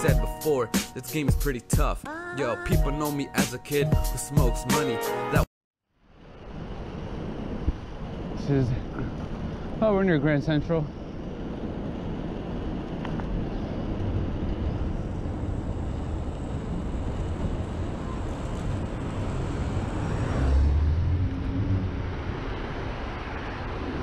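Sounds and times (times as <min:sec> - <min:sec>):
city traffic: 0:06.1 - 0:24.0
wind noise: 0:06.1 - 0:24.0
vehicle passing close by: 0:16.8 - 0:24.0.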